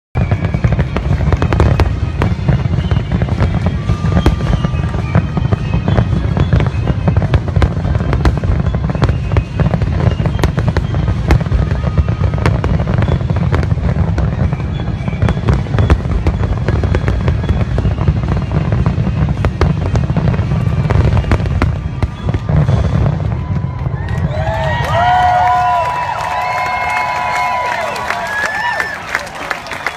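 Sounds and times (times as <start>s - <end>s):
fireworks bangs and crackles: 0.2s - 29.9s.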